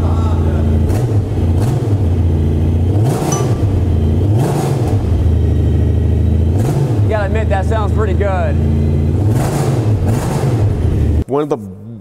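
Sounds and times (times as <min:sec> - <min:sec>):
engine throttle blips: 0:00.1 - 0:11.2
motorcycle engine idling: 0:03.4 - 0:04.2.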